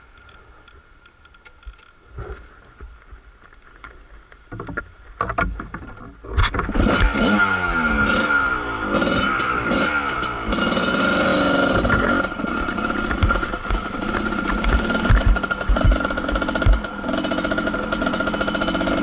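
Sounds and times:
dirt bike engine starting and revving: 6.4s - 19.0s.

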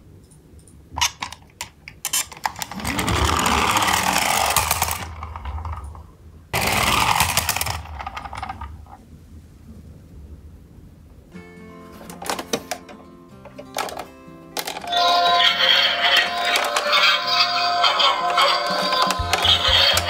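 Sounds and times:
toy truck rolling on wood: 1.1s - 9.0s, 13.5s - 20.0s.

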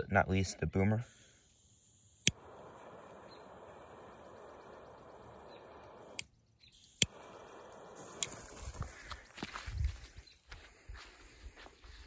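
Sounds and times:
torch lighter hissing: 1.1s - 8.9s.

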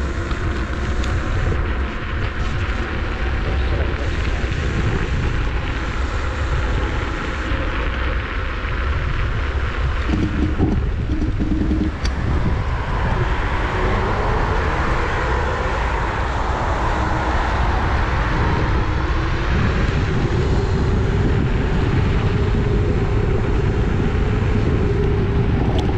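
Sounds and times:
faint motor whine: 0.0s - 25.9s
low rolling rumble: 0.0s - 25.9s
wind buffeting microphone: 0.0s - 25.9s.

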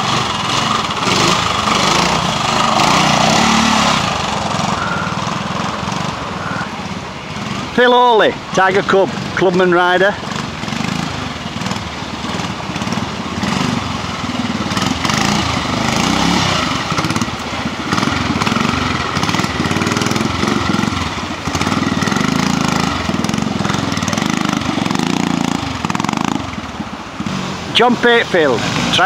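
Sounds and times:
motorcycle engine revving: 0.0s - 29.0s
water rushing over rocks: 0.0s - 29.0s.

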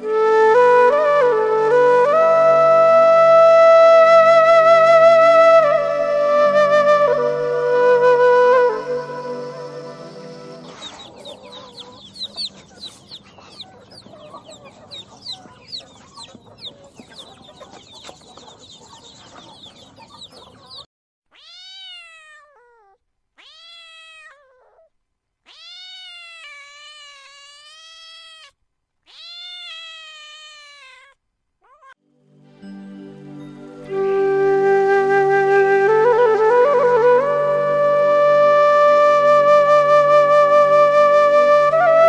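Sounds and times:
chicks peeping: 10.6s - 20.8s
cat meowing: 21.3s - 32.0s.

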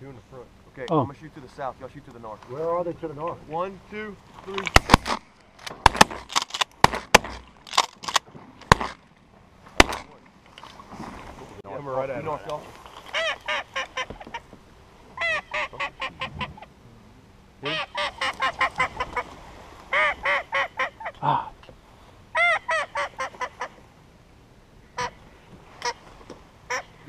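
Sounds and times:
waterfowl call notes: 13.0s - 14.5s, 15.2s - 16.7s, 17.6s - 21.5s, 22.3s - 23.8s, 24.9s - 25.2s, 25.8s - 26.1s, 26.7s - 27.0s.

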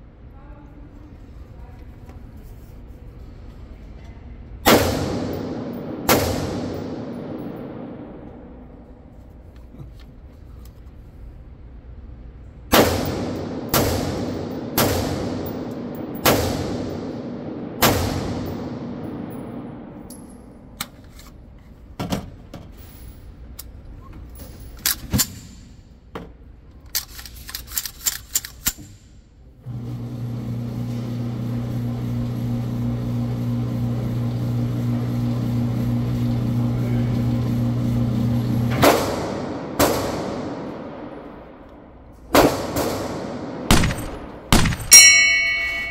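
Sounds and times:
steady low hum: 0.0s - 26.9s, 28.9s - 45.9s
loud echoing gunshots: 4.6s - 8.2s, 12.7s - 20.0s, 38.8s - 41.6s, 42.3s - 45.1s
rifle metallic clicks: 26.8s - 29.1s, 43.7s - 45.0s.

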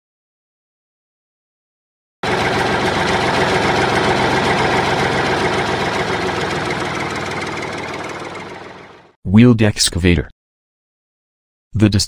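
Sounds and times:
excavator engine idling: 2.2s - 9.1s.

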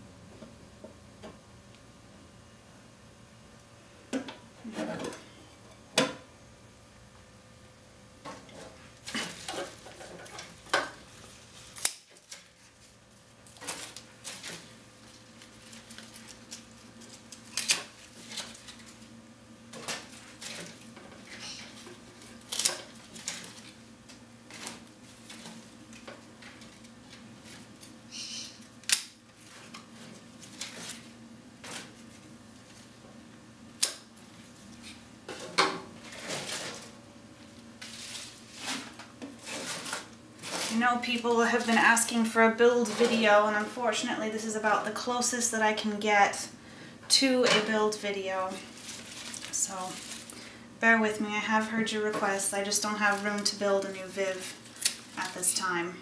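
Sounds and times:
leaves rustling: 37.8s - 42.1s, 48.5s - 50.3s.

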